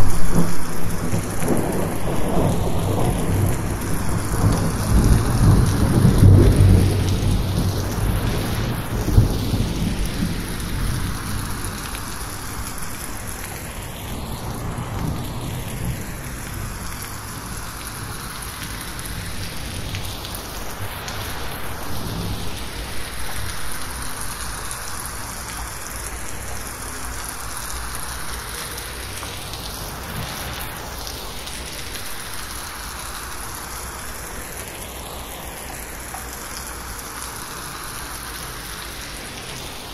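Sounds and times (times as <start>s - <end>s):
thunder rumble: 0.0s - 34.3s
rain on metal roof: 0.0s - 39.9s.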